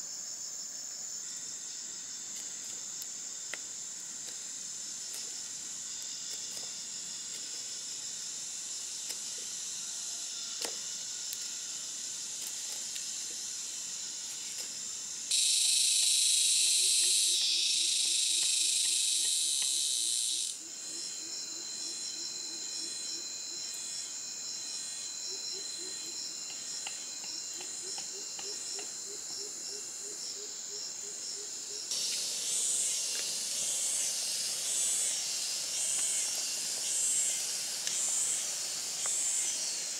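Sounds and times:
insects droning: 0.0s - 39.9s
loud harsh insect buzz: 1.2s - 39.9s.

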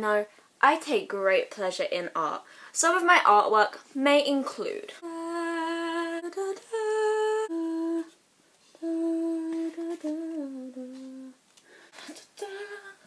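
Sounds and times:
woman singing wordless tune: 4.8s - 8.2s, 8.8s - 11.4s, 12.0s - 13.0s.

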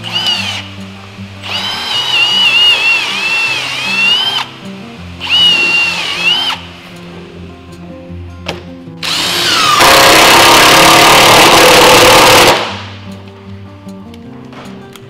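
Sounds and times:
electric drill boring into wood: 0.0s - 0.7s, 1.4s - 4.5s, 5.2s - 6.7s, 9.0s - 12.8s
background music: 0.0s - 15.0s.

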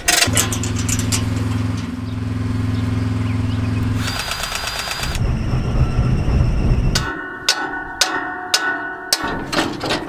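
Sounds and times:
mechanical whir with clatter: 0.0s - 7.1s
tractor diesel engine idling: 0.1s - 7.0s.

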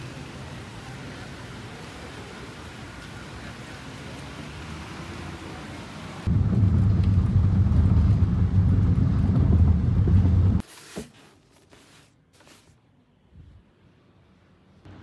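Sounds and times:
car cabin road noise: 6.2s - 10.6s.

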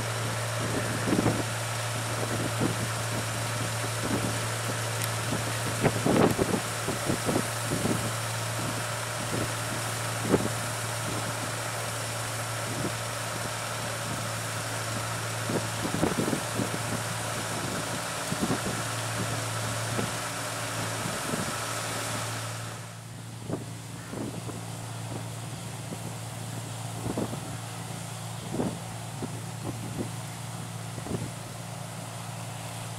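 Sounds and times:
combine harvester engine drone: 0.0s - 32.9s
threshing machinery hiss: 0.0s - 32.9s
wind thumping on microphone: 0.6s - 1.5s, 2.2s - 11.3s, 15.4s - 20.2s, 23.4s - 25.3s, 27.0s - 27.6s, 28.4s - 30.2s, 30.9s - 31.4s.

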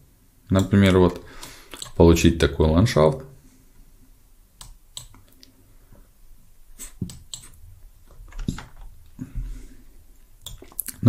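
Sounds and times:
mouse and keyboard clicks: 4.6s - 5.2s.

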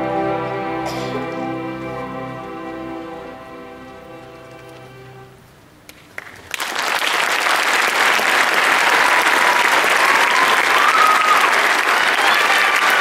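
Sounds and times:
string orchestra chord: 0.0s - 5.6s
audience applause: 6.1s - 13.0s.

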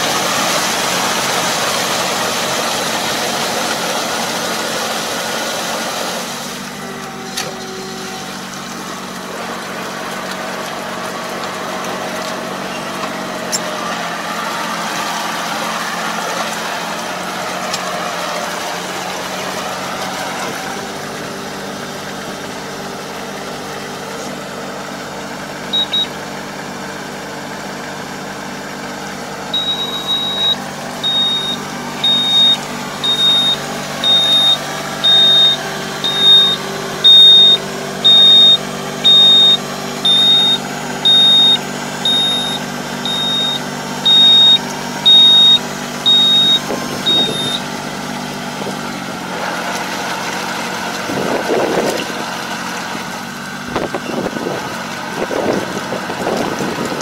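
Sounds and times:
tractor diesel engine running: 0.0s - 57.0s
high electronic warning beep: 25.7s - 26.1s, 29.5s - 47.7s.

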